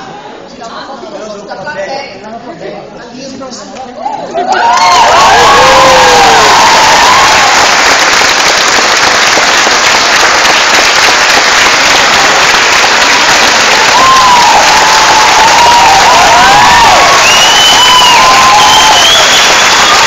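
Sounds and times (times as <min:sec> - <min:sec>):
shouts and cheers: 0:04.0 - 0:07.8, 0:13.6 - 0:20.0
audience applauding: 0:04.4 - 0:20.0.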